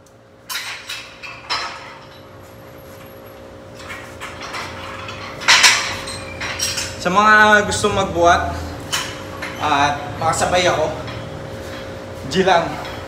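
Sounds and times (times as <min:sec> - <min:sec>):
weight plates rattling and clinking: 0:03.8 - 0:07.0.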